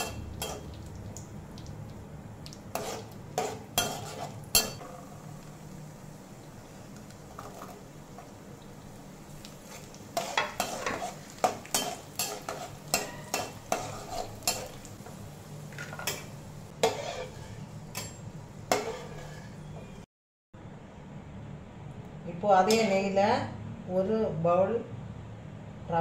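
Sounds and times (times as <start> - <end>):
cashews sizzling in oil: 0.0 - 20.0
metal spatula clinking on pan: 3.4 - 4.8, 10.2 - 14.8.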